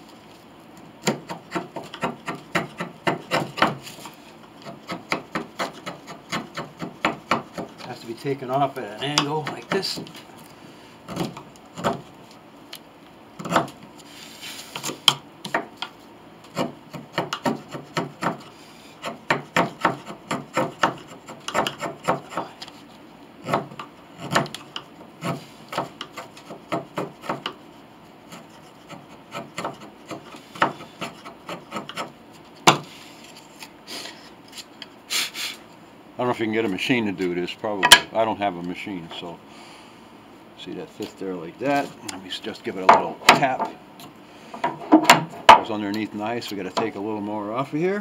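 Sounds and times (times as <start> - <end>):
chisel scraping wood: 1.0 - 10.2, 15.8 - 22.8, 23.4 - 33.7.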